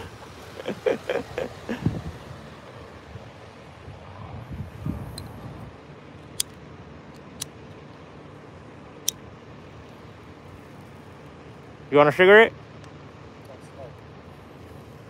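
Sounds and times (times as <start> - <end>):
low rumble: 1.7 - 5.9.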